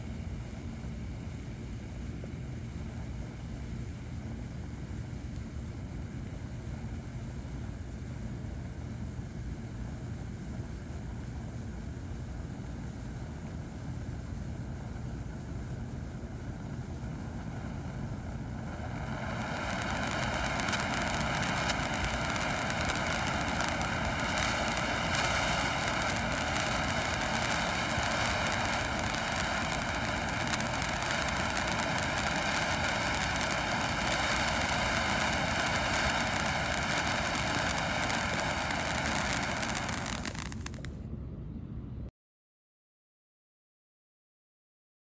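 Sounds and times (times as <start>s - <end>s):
firework hissing and buzzing: 16.1s - 41.0s.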